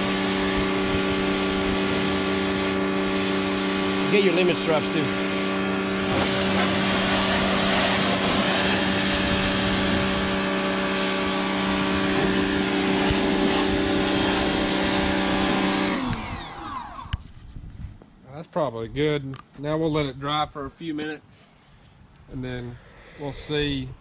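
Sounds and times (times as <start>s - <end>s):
water jet spraying: 0.0s - 16.0s
pressure washer motor hum: 0.0s - 17.2s.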